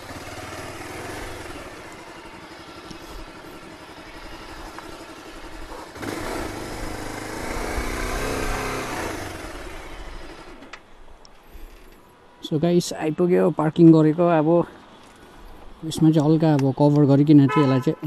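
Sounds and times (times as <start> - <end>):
motorcycle engine running: 0.0 - 10.6.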